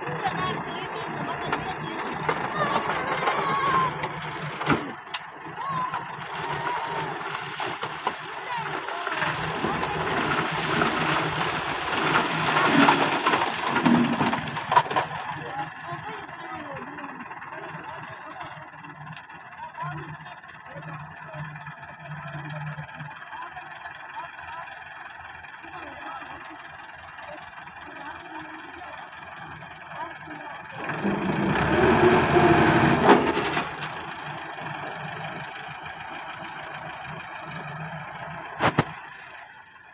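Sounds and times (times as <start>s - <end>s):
tractor diesel engine running: 0.0s - 39.9s
stone tumbling into trailer: 9.7s - 15.2s.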